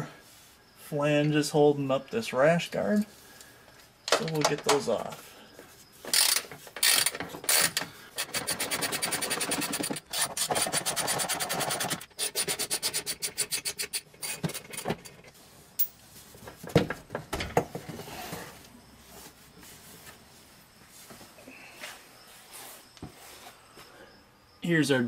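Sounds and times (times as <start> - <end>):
ratchet clicking: 6.1 - 15.0.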